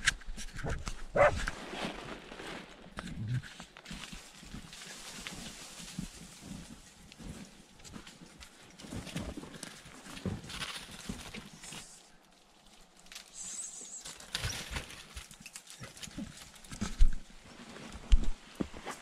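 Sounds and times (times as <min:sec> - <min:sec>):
dog feet scrabbling in snow and leaves: 0:03.8 - 0:19.0.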